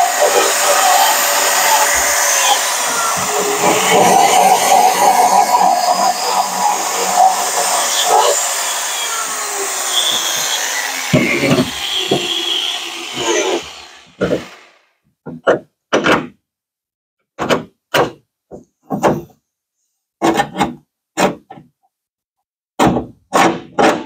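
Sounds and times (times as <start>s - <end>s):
power tool whirring: 0.0s - 14.9s
knocks on metal parts: 15.2s - 16.4s, 22.8s - 24.0s.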